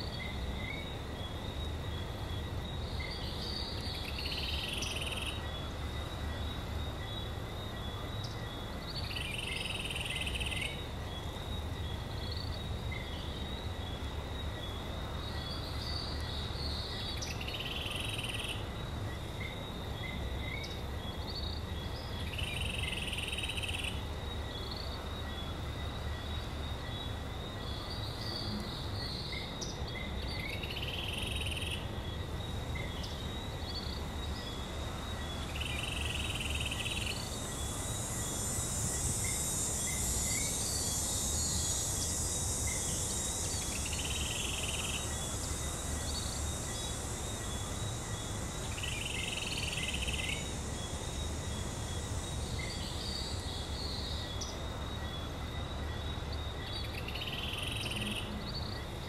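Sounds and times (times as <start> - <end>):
insect drone: 0.0 - 59.0
high hiss: 22.0 - 59.0.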